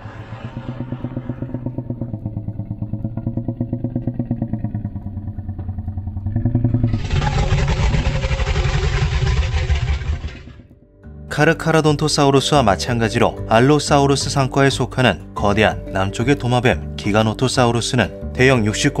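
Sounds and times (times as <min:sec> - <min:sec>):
low pulsing growl and roar: 0:00.0 - 0:10.7.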